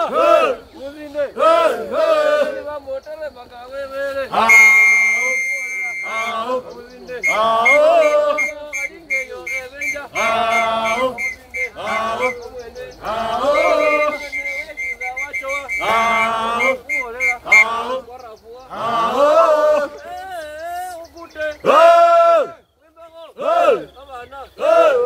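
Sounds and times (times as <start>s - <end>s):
men chanting: 0.0s - 25.0s
whistle steady note: 4.4s - 12.5s, 13.4s - 17.8s.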